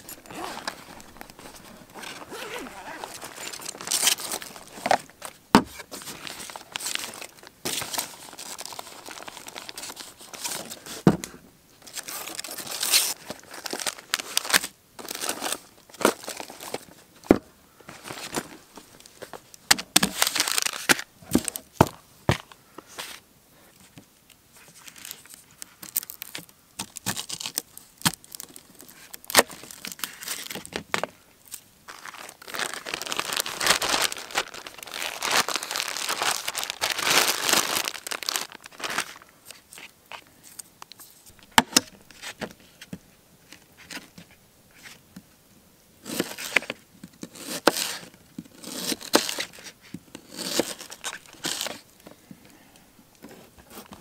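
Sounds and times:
plastic bag crinkling: 0.0s - 10.6s, 20.1s - 21.0s, 24.8s - 39.6s.

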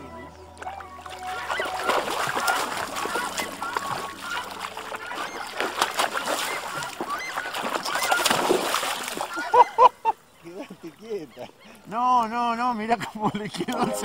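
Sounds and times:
birds calling: 0.0s - 14.0s
fish thrashing and splashing: 0.6s - 9.6s.

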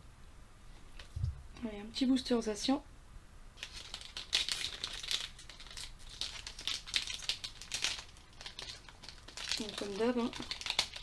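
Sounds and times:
foil wrapper crinkling: 3.6s - 11.0s.

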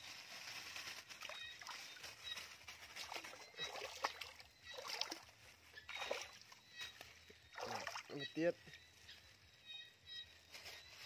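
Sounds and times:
river water sloshing and splashing: 1.0s - 8.2s.

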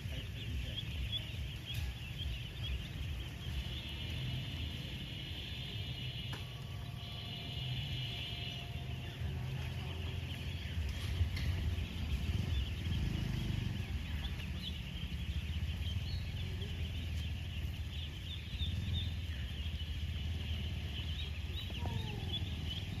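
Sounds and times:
steady low rumble: 0.0s - 13.0s
ducklings peeping: 0.0s - 23.0s.

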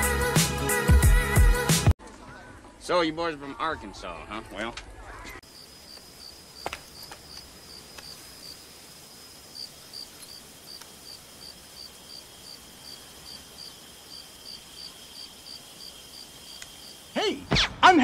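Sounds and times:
crickets chirping: 5.4s - 17.5s
insect trill: 5.4s - 17.5s
faint ticks: 5.8s - 8.3s, 10.1s - 11.2s, 16.5s - 16.8s.

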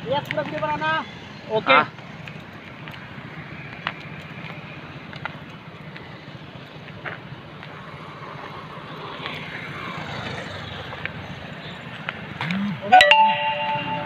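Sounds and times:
motor vehicle passing: 0.6s - 12.9s.

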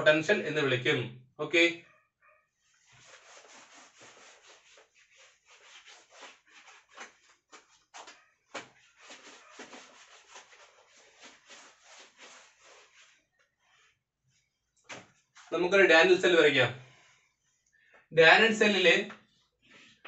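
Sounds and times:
cloth rubbing on chalkboard: 2.6s - 13.9s.

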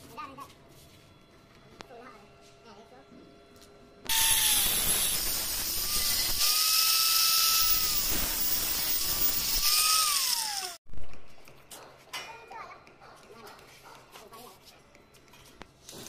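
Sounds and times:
angle grinder cutting metal: 4.1s - 10.8s.

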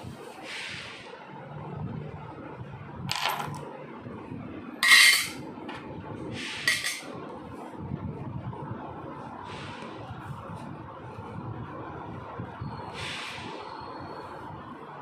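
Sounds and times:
steel bolts clinking: 4.8s - 5.4s.

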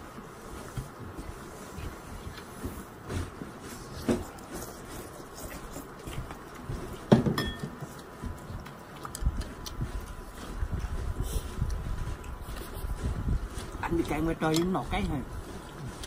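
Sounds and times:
utensils clinking on dishes: 7.2s - 7.8s.

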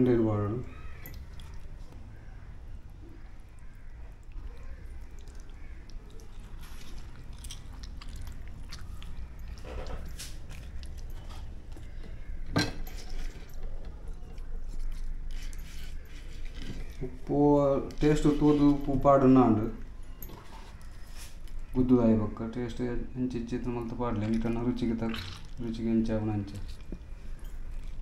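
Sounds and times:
squishy stuffing sounds: 23.8s - 28.0s.

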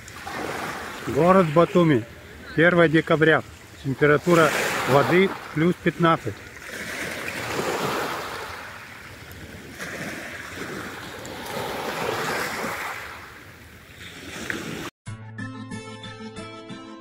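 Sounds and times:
waves washing on pebbles: 0.0s - 13.4s.

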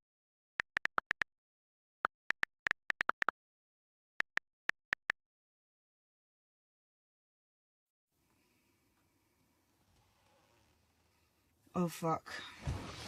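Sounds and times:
phone keyboard clicks: 0.6s - 1.2s, 2.3s - 3.3s.

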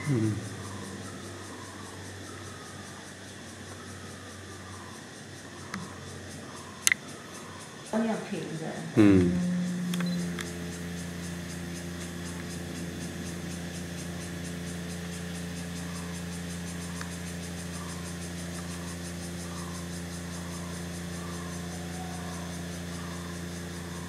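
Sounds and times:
machine hum: 0.0s - 2.0s, 8.9s - 24.0s.

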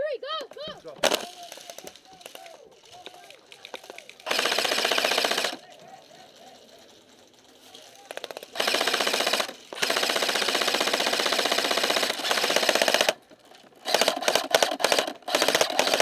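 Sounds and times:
airsoft rifle firing full-auto: 3.8s - 5.8s, 8.1s - 13.2s, 13.8s - 16.0s.

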